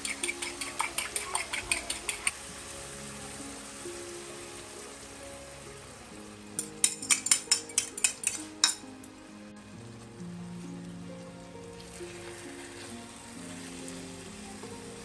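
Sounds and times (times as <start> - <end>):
fork clinking against bowl: 0.0 - 2.3, 6.6 - 8.8
eggplant sizzling in a wok: 0.0 - 15.0.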